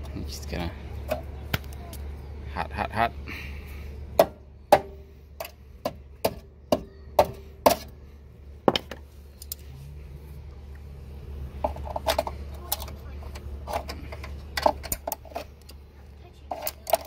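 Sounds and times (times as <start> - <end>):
rubber mallet hammering sheet metal: 4.2 - 5.0.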